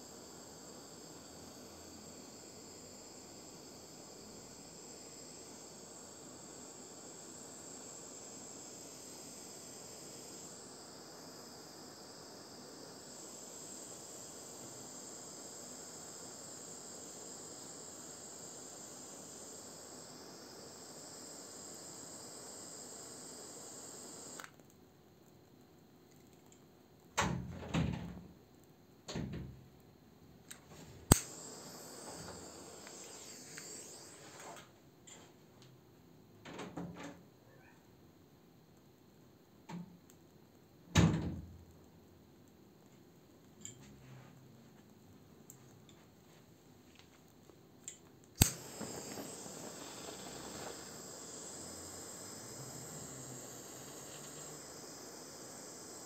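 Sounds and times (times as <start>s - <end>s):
butane torch hissing: 0.0s - 24.7s, 30.5s - 34.7s, 48.2s - 56.0s
sharp click: 30.5s - 31.4s, 47.9s - 50.8s.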